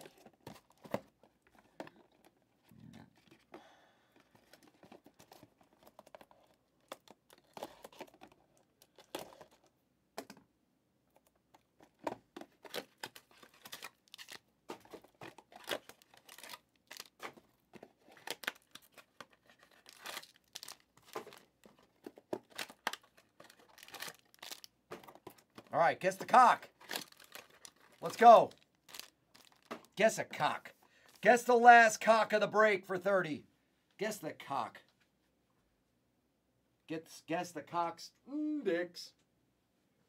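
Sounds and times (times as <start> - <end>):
plastic wrappers tearing and crinkling: 4.9 - 9.6, 12.5 - 25.6, 26.7 - 29.9.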